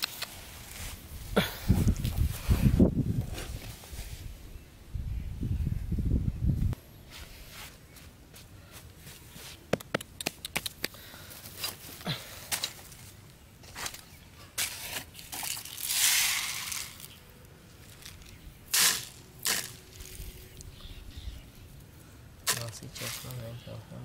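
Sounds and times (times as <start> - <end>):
hands tapping and scraping sand: 7.1 - 13.0, 17.9 - 20.2, 22.4 - 23.5.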